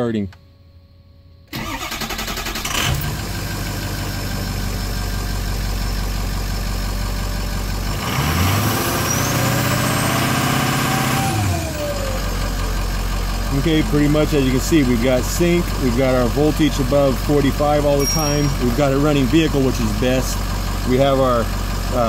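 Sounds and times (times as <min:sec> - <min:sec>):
diesel engine cranking and idling: 0:01.5 - 0:22.0
engine revving: 0:01.6 - 0:04.9, 0:07.7 - 0:12.6.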